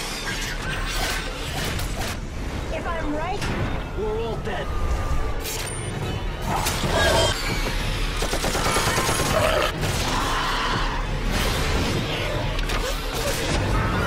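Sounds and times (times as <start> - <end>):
film trailer music: 0.0 - 14.0
rapid automatic gunfire: 8.2 - 9.7.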